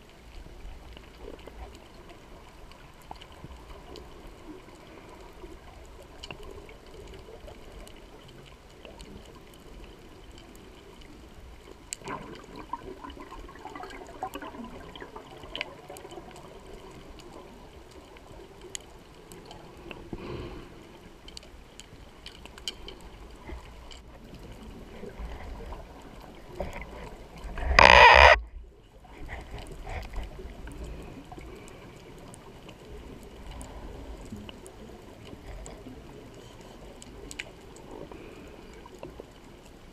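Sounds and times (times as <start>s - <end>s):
underwater bubbling: 0.0s - 39.9s.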